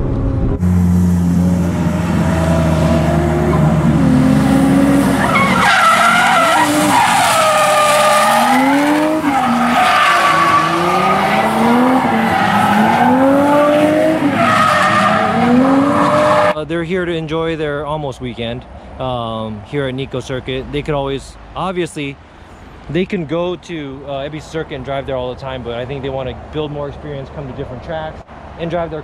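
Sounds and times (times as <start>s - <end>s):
car engine revving: 0.0s - 16.6s
tyres squealing: 5.0s - 16.6s.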